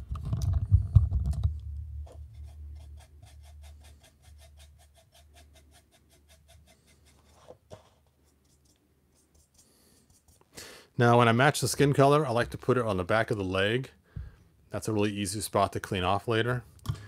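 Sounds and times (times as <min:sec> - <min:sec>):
paintbrush scratchy strokes: 0:02.0 - 0:10.5.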